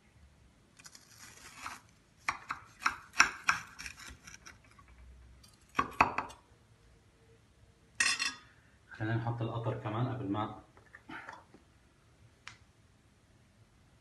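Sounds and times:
knife cutting crisp pastry: 0:00.8 - 0:04.9.

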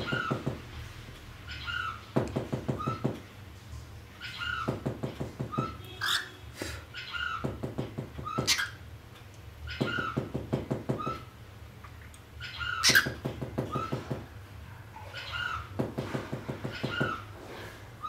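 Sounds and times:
cockatiel chattering: 0:08.2 - 0:08.8, 0:12.4 - 0:14.0.

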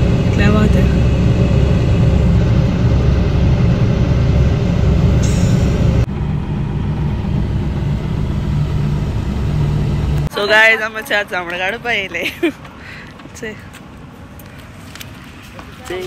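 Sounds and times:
car engine rumbling: 0:00.0 - 0:16.0.

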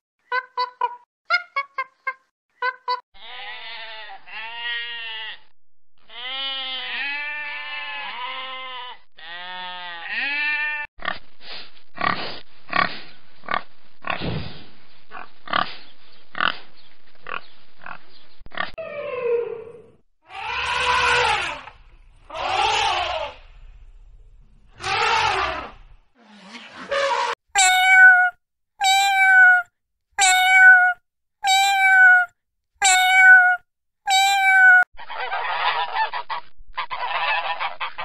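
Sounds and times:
pigs grunting: 0:12.0 - 0:14.3, 0:15.1 - 0:15.8.

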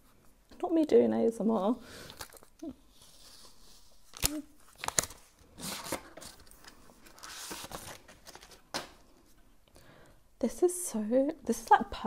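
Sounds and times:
paper rustling and sliding: 0:02.9 - 0:08.9
cardboard packaging snapping: 0:04.1 - 0:06.5.

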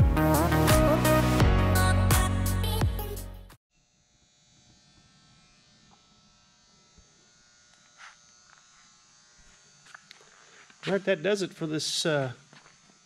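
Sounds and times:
background music: 0:00.0 - 0:03.6
faint electrical buzz: 0:03.7 - 0:13.0.

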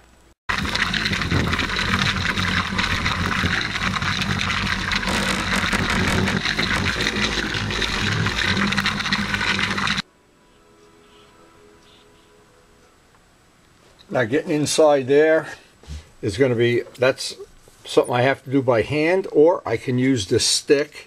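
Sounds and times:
electric polisher whirring: 0:00.6 - 0:10.0.

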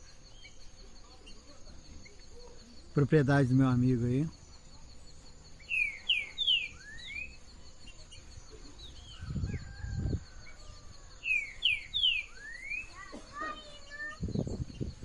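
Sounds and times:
insects buzzing: 0:00.0 - 0:15.0
songbird whistling: 0:04.6 - 0:15.0.

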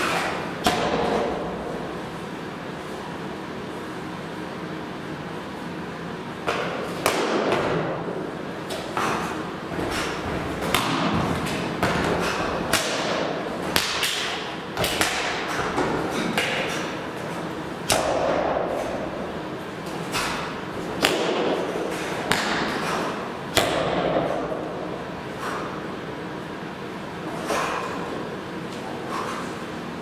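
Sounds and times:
stamps and slaps ringing in a gym: 0:00.0 - 0:02.0, 0:06.4 - 0:25.8, 0:27.3 - 0:29.6.

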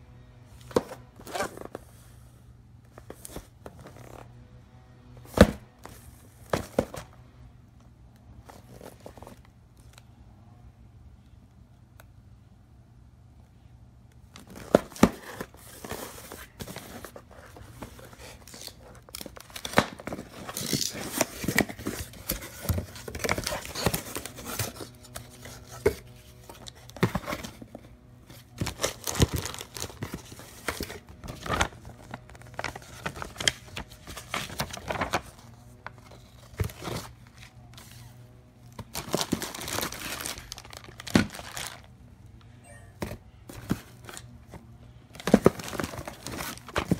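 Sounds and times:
plastic bag crinkling: 0:38.9 - 0:41.9.

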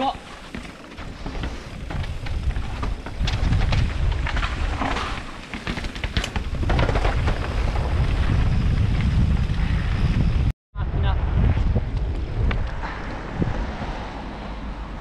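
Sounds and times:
bike rattling and knocking: 0:00.4 - 0:09.2
wind buffeting microphone: 0:01.0 - 0:05.3, 0:06.3 - 0:15.0.

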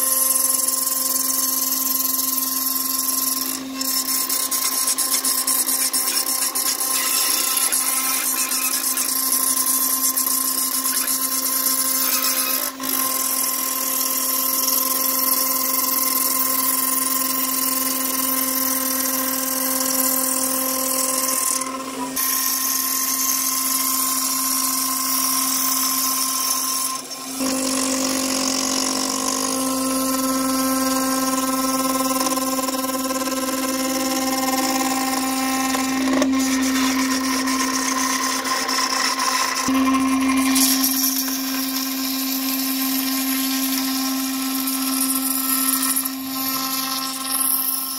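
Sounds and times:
router spindle whining: 0:00.0 - 0:47.9.

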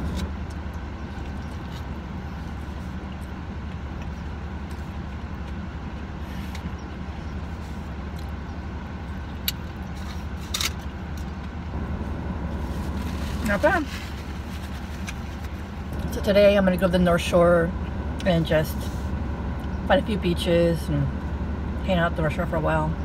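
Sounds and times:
car engine idling: 0:00.0 - 0:23.0
foil wrapper crinkling: 0:12.6 - 0:15.9.

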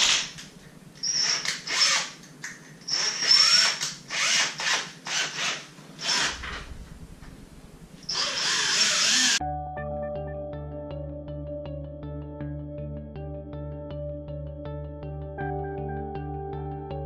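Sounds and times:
cordless drill whining: 0:00.0 - 0:02.2, 0:02.8 - 0:06.7, 0:08.0 - 0:09.4.

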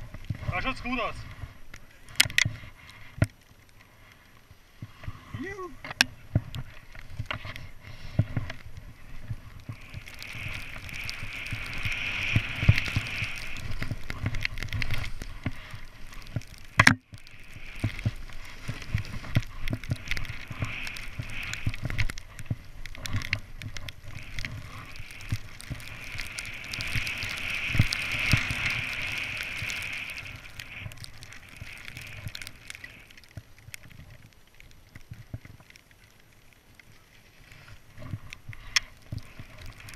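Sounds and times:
snowboard swishing through snow: 0:07.9 - 0:16.6, 0:17.3 - 0:33.1.

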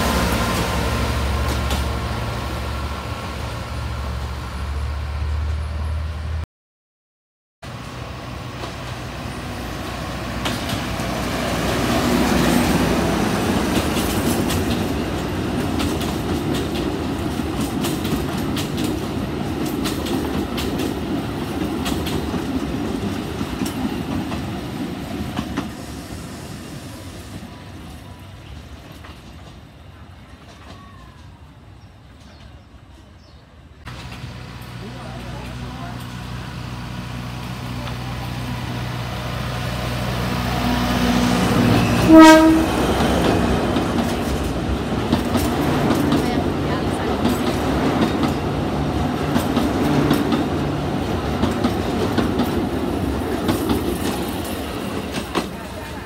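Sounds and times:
diesel locomotive engine hum: 0:00.0 - 0:06.4, 0:07.6 - 0:56.0
train coaches rumbling: 0:00.0 - 0:06.4, 0:07.7 - 0:56.0
wheels clicking over rail joints: 0:13.6 - 0:25.7, 0:42.9 - 0:56.0.

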